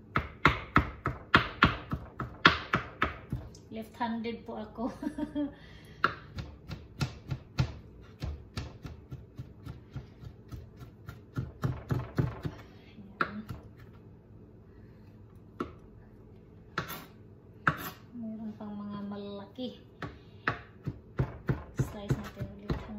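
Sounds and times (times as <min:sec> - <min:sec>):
knife chopping on plastic board: 0:00.1 - 0:03.5, 0:06.0 - 0:12.6, 0:15.6 - 0:15.8, 0:16.7 - 0:18.0, 0:20.0 - 0:22.9.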